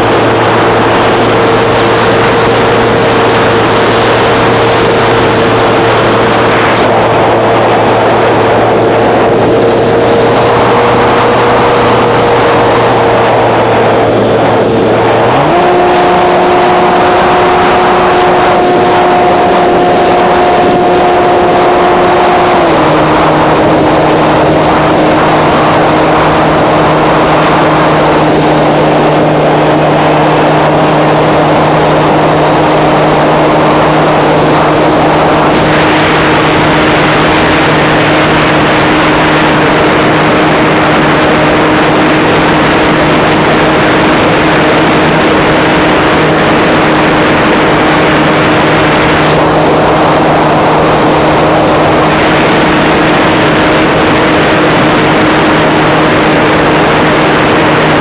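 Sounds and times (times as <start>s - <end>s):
model plane motor and propeller: 0.0s - 12.3s
wind rush: 0.0s - 58.0s.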